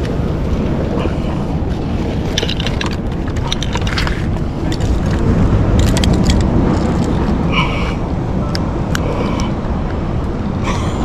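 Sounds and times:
wind and surf on microphone: 0.0 - 11.0
bag buckle rustles and clicks: 2.1 - 7.3.

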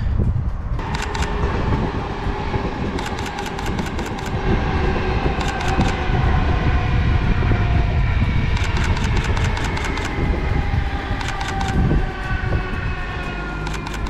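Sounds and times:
low rumble: 0.0 - 14.0
car engine running: 0.6 - 6.2
camera shutter clicks: 0.9 - 1.3, 3.0 - 4.4, 5.4 - 6.0, 8.6 - 10.1, 11.2 - 11.8, 13.7 - 14.0.

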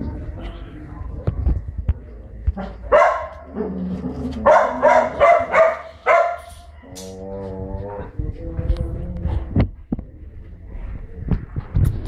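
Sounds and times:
puppy barking: 2.6 - 3.6, 4.4 - 6.6.

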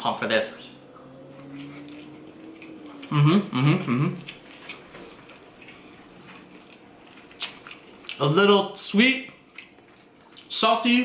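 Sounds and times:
man humming with mouth full: 0.9 - 4.3
chewing: 1.0 - 8.2, 9.3 - 10.6.

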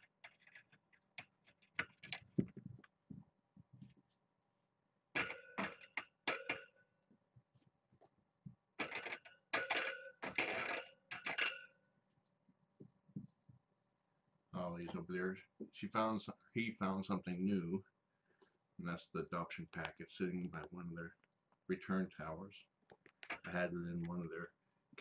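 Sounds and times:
rustling and clinking: 0.0 - 4.2, 5.2 - 6.9, 8.8 - 11.8.

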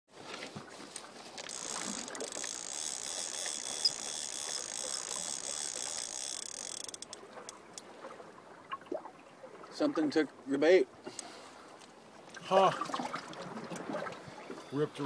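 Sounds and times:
fishing reel whirring: 1.4 - 7.9
sharp clicks: 1.4 - 7.9.

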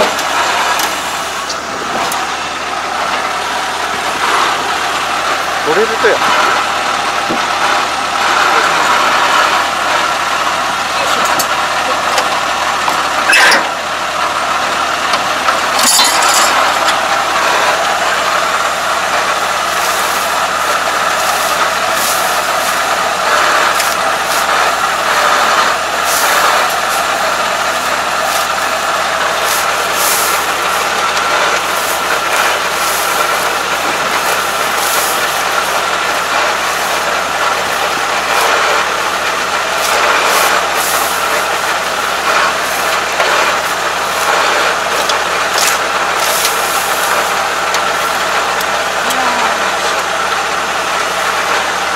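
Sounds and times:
machine running: 0.0 - 51.9
straw rustling and scraping: 19.4 - 48.3.

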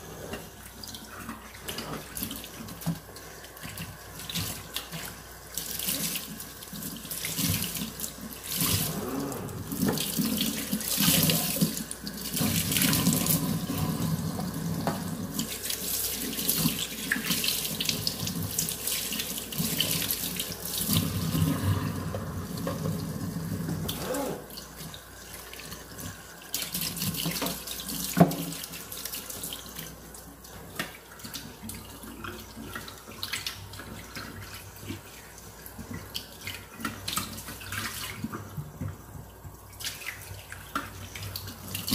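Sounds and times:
tap running into a sink: 27.0 - 28.7.

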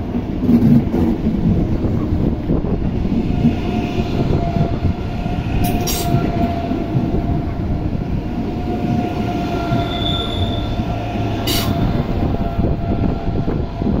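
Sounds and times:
train wheels rumbling on rail: 0.0 - 14.0
wheel squeal: 9.0 - 13.0.

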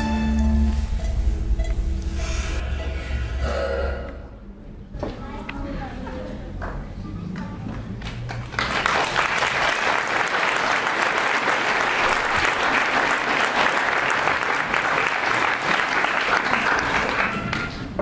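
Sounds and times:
audience applauding: 8.1 - 17.9.

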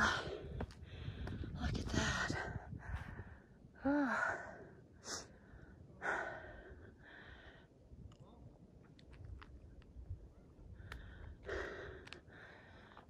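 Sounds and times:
person breathing hard: 0.0 - 7.7, 10.8 - 13.0.

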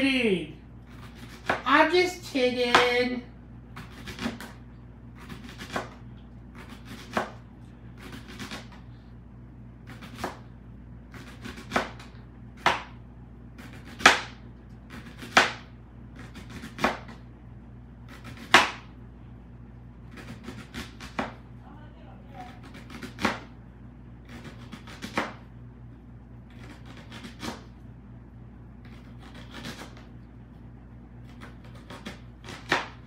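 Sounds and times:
knife slicing onion on board: 0.9 - 1.8, 3.7 - 8.9, 9.8 - 10.5, 11.1 - 17.2, 18.0 - 19.0, 20.1 - 21.4, 22.4 - 23.5, 24.2 - 25.5, 26.4 - 27.8, 28.8 - 30.2, 31.2 - 33.0.

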